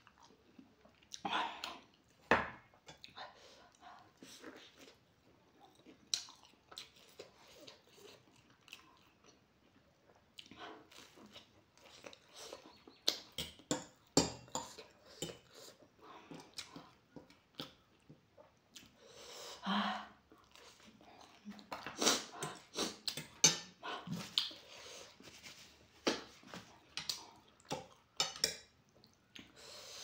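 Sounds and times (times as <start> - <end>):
close-up chewing: 2.8 - 19.0, 20.2 - 29.6.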